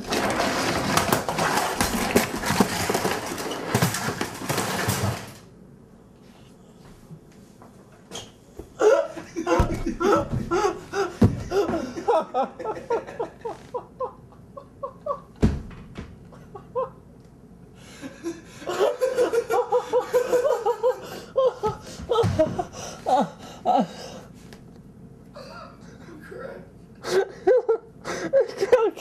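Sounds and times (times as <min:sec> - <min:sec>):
hearty laughter: 0:08.8 - 0:15.4, 0:16.3 - 0:17.0, 0:17.9 - 0:23.9, 0:27.0 - 0:29.0.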